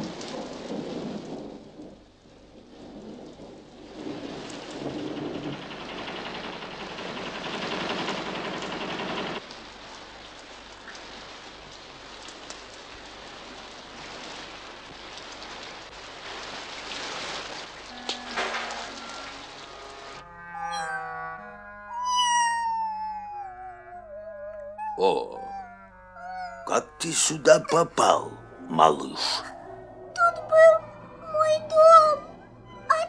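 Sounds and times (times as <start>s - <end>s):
heavy rain: 0.0s - 20.8s, 26.6s - 29.5s.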